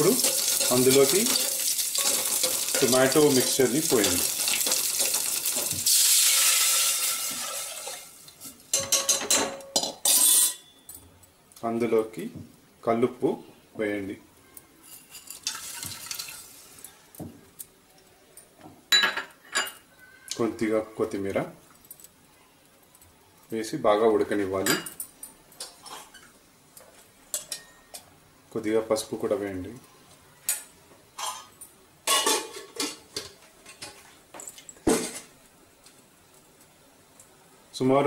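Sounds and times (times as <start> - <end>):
metal utensils clinking: 0.0 - 8.1, 8.7 - 11.1, 14.8 - 16.6, 27.3 - 28.0, 30.5 - 35.3
salt pouring into a pot: 0.0 - 8.3, 15.4 - 16.9.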